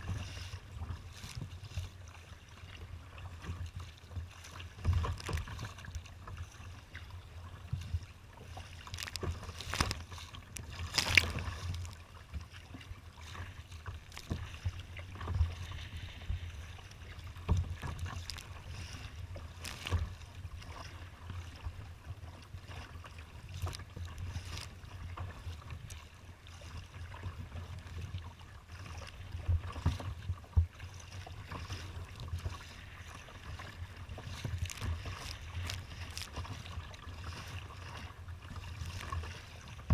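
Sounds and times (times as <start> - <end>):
water splashing against boat hull: 0.0 - 39.9
wind rumble on microphone: 0.0 - 39.9.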